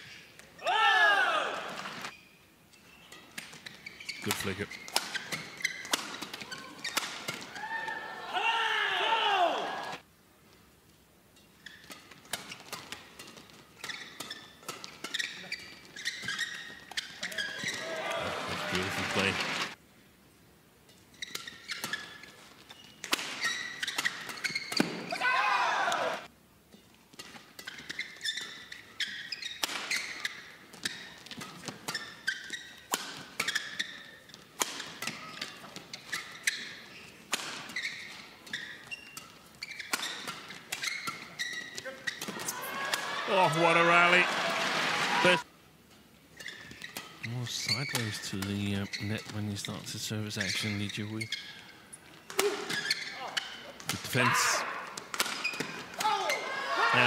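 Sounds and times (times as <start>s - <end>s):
court shoes squeaking: 1.7s - 8.0s, 11.3s - 19.8s, 20.8s - 25.3s, 25.9s - 44.3s, 45.2s - 57.0s
rackets hitting shuttlecock: 4.3s - 7.6s, 23.0s - 25.2s, 29.1s - 43.2s, 52.2s - 54.0s, 54.8s - 56.5s.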